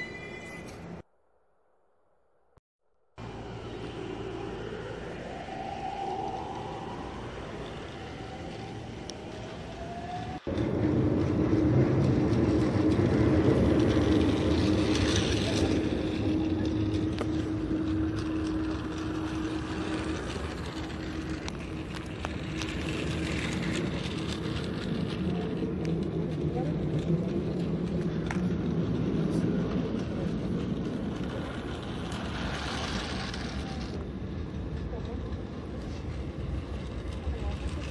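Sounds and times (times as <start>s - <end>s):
wheels clicking on track: 5.6s - 37.9s
toy train motor whirring: 12.6s - 26.0s, 29.6s - 34.0s.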